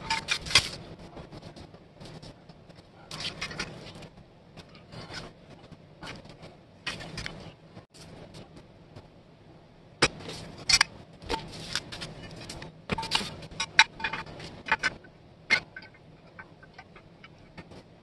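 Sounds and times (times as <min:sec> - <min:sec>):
metal scrapes: 0:10.2 - 0:18.0
metal parts clinking and knocking: 0:11.8 - 0:17.7.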